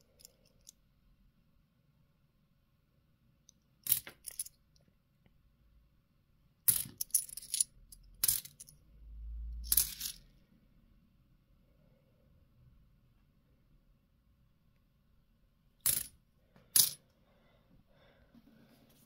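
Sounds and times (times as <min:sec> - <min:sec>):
coins clinking: 0:06.7 - 0:08.8, 0:09.6 - 0:10.2, 0:15.8 - 0:16.1.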